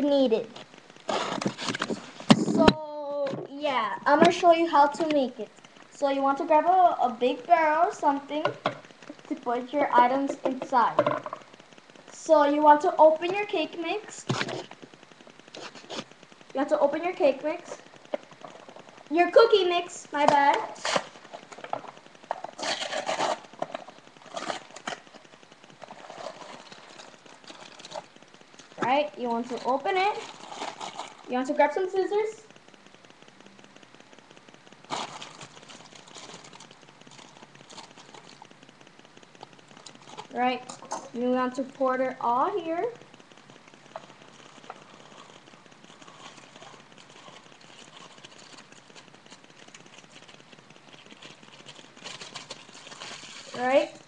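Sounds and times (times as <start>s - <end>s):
plastic bag crinkling: 20.2s - 31.6s, 34.8s - 38.7s, 39.3s - 41.2s, 43.4s - 54.0s.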